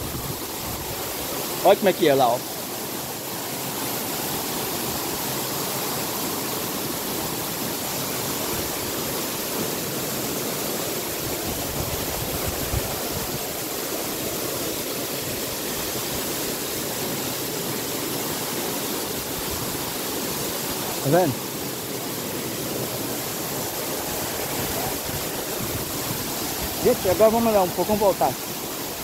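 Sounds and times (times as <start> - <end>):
stream running over rocks: 0.0 - 29.0
waterfall rushing: 0.0 - 29.0.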